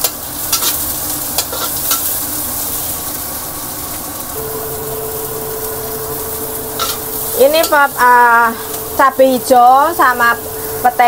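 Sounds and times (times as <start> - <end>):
vegetables sizzling in hot oil: 0.0 - 11.0
steady tone: 4.4 - 11.0.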